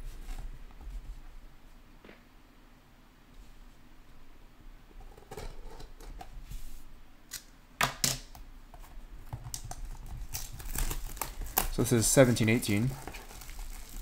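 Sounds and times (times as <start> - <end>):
plastic wrap crinkling: 9.6 - 14.0.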